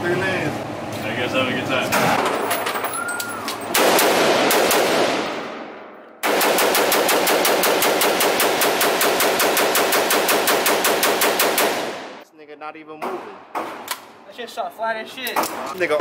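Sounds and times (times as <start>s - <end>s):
rifle shots echoing indoors: 3.7s - 12.2s.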